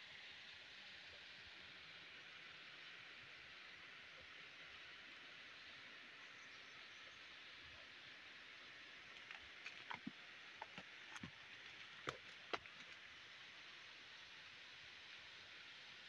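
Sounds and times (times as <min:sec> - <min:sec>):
faint forest ambience hiss: 0:00.0 - 0:16.0
dry twigs snapping and crackling: 0:09.1 - 0:13.0.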